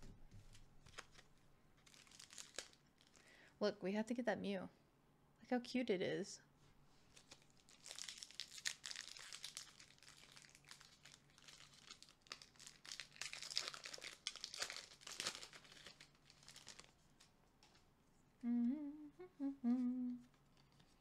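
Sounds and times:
foil wrapper crinkling and tearing: 0.9s - 3.3s, 7.1s - 17.0s
person humming: 18.4s - 20.3s.

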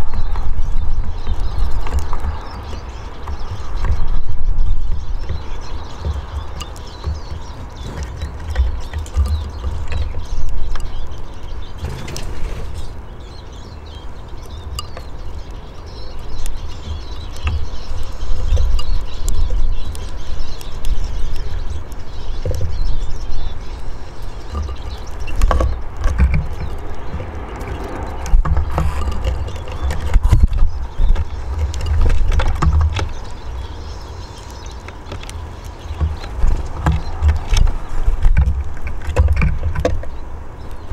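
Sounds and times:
birds chirping: 0.0s - 40.9s
birds pecking clicks: 0.0s - 40.9s
wind rumble on microphone: 0.0s - 40.9s.

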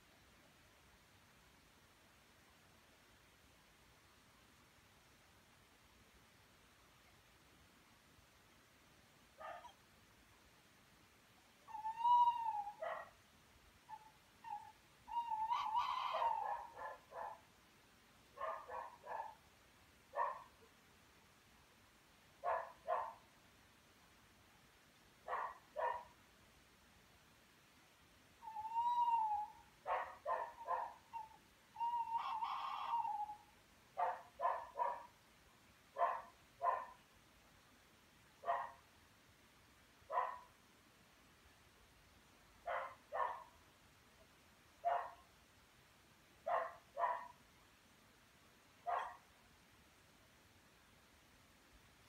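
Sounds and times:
animal calls: 11.7s - 13.1s, 13.9s - 17.4s, 28.4s - 35.0s
harsh animal sounds: 31.2s - 33.4s.

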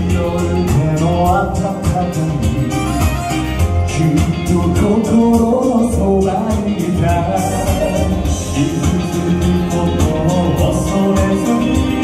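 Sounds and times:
instrumental backing with beat: 0.0s - 12.0s
men singing pop song: 0.0s - 12.0s.

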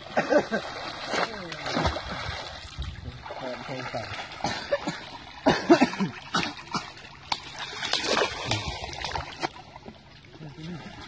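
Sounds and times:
people splashing through stream: 0.0s - 11.0s.

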